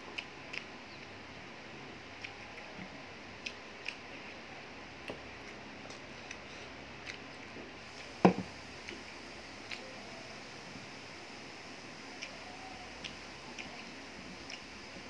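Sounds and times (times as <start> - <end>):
chewing smacks: 0.1 - 1.1, 2.2 - 4.4, 5.0 - 7.5, 12.1 - 14.8.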